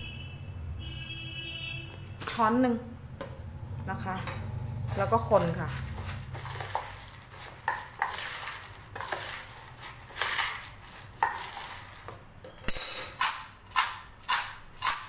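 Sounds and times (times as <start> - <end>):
metal spoon scraping steel bowl: 4.1 - 15.0.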